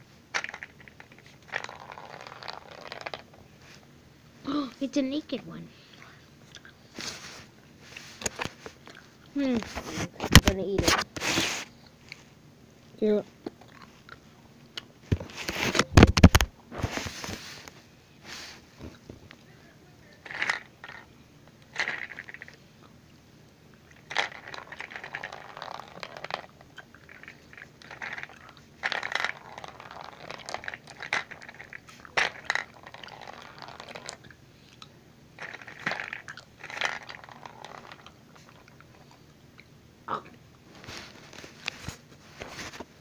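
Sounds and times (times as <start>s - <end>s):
gumballs rattling down plastic chute: 0.4s - 3.3s, 20.2s - 21.1s, 21.7s - 22.5s, 24.0s - 34.2s, 35.4s - 38.1s.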